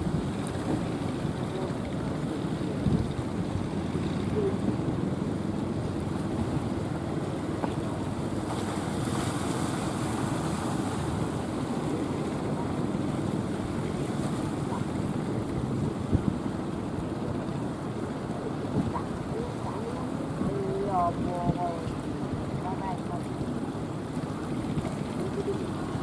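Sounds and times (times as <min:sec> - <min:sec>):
rough sea surf: 0:00.0 - 0:26.0
wave breaking: 0:00.0 - 0:26.0
wind buffeting microphone: 0:00.0 - 0:26.0.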